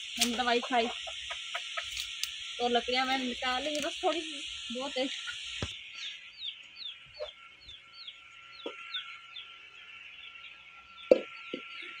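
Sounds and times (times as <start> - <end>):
fowl peeping: 0.2 - 2.0, 5.1 - 12.0.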